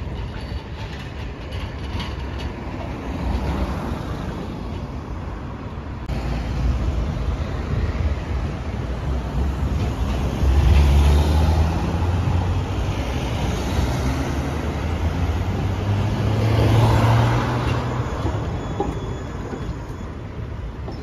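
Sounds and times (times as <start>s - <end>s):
tram rolling past: 0.0s - 21.0s
car passing close: 6.0s - 19.8s.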